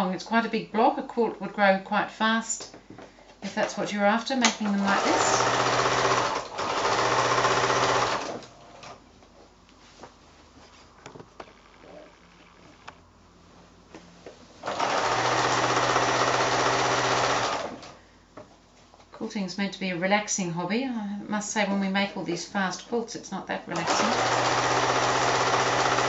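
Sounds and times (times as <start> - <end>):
sewing machine stitching: 4.4 - 8.9, 14.6 - 18.0, 23.8 - 26.0.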